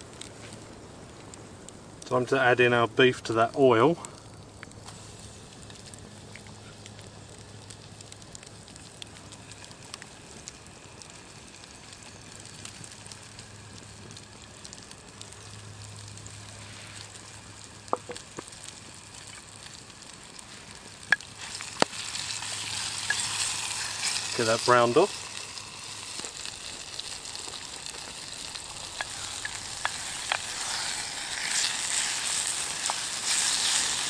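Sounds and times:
campfire and oil crackling: 0.0s - 34.0s.

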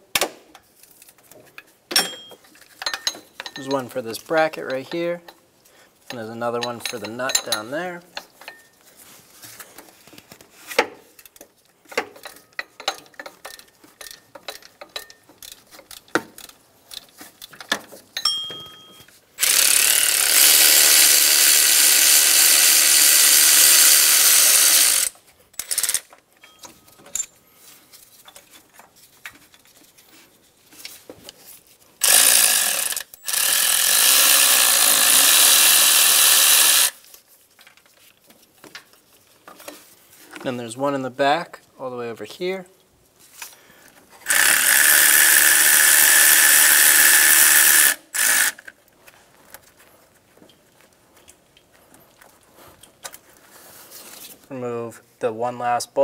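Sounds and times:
clicks and knocks of tool handling: 0.1s - 3.9s, 6.0s - 19.2s, 25.5s - 30.0s
power tool spinning out bolts: 19.4s - 26.1s, 32.0s - 37.0s, 44.2s - 48.7s.

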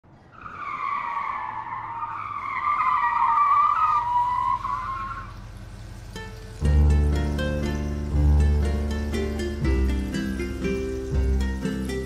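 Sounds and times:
music with plucked strings: 6.1s - 12.0s.

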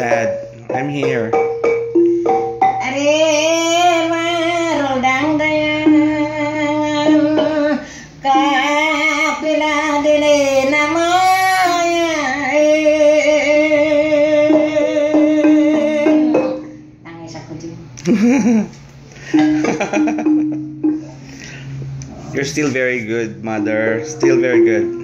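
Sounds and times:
bamboo xylophone struck with mallets: 0.0s - 3.0s, 19.3s - 21.1s, 23.5s - 25.0s.

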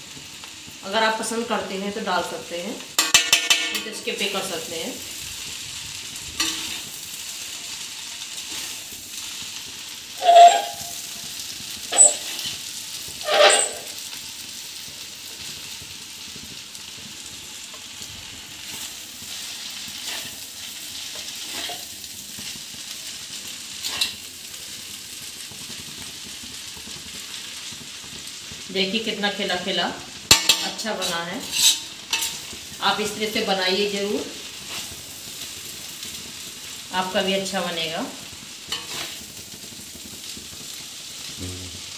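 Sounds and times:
noodles sizzling in a pan: 0.0s - 41.9s
metal utensils clattering on pan: 3.0s - 4.4s, 6.4s - 6.9s, 10.2s - 11.1s, 11.9s - 12.6s, 13.2s - 14.0s, 21.1s - 21.9s, 23.8s - 24.2s, 30.3s - 33.2s, 38.7s - 39.2s.

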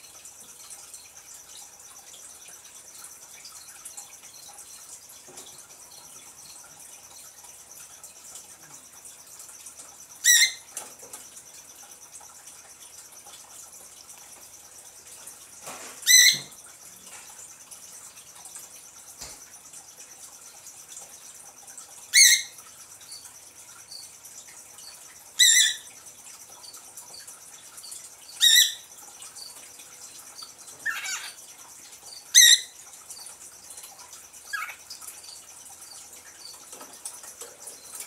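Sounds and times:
cockatiel chirping: 10.2s - 10.6s, 16.1s - 16.5s, 22.1s - 22.6s, 28.4s - 28.8s, 32.3s - 32.7s, 34.5s - 34.8s.

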